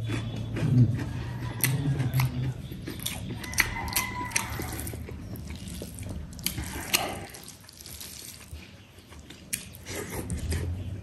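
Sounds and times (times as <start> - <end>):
chewing and mouth sounds: 0.0 - 11.0.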